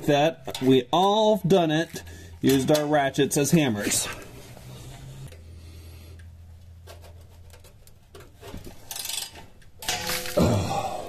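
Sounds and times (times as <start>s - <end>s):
rusted bolt creaking: 6.8s - 10.4s.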